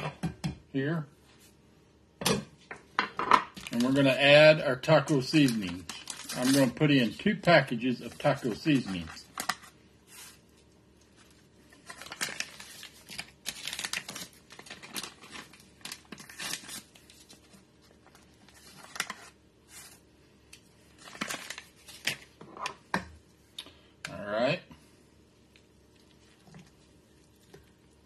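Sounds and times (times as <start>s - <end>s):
paper packets crinkling: 3.6s - 4.2s, 5.1s - 20.1s, 20.9s - 22.4s.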